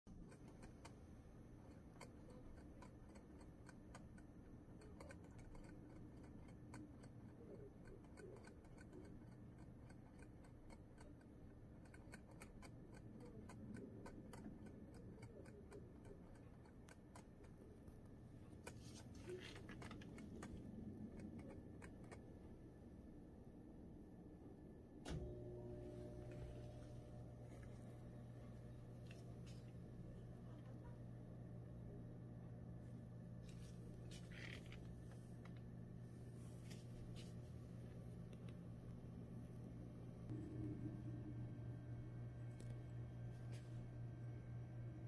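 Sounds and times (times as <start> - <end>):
hamster licking water bottle tube: 0.1 - 22.2.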